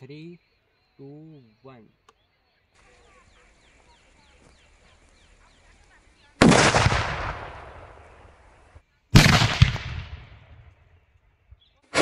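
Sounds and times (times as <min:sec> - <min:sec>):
sharp crack: 0:06.4 - 0:08.3, 0:09.2 - 0:10.8
firecracker blast: 0:06.4 - 0:08.5, 0:09.2 - 0:10.8.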